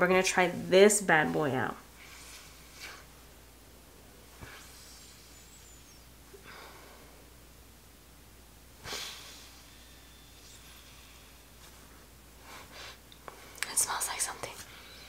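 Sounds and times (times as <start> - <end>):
sniffs through the nose: 8.8 - 13.0.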